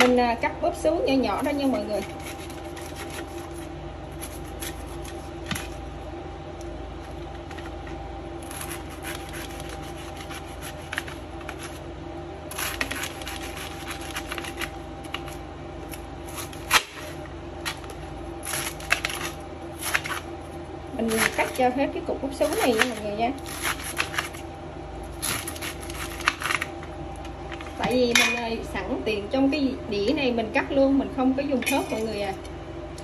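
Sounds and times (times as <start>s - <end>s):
steady hum: 0.0s - 33.0s
knife slicing cabbage: 1.4s - 5.8s, 7.5s - 11.8s, 12.5s - 20.3s, 21.0s - 21.6s, 22.4s - 24.4s, 25.1s - 26.7s.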